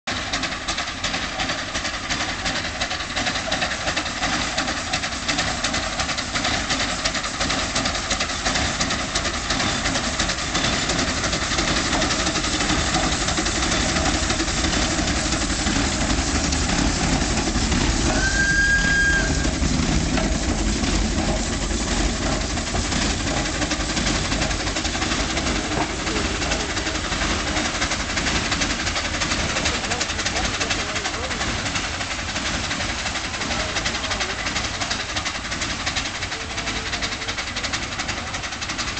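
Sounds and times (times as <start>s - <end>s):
steam locomotive hissing: 0.1s - 38.9s
steam whistle: 18.1s - 19.6s.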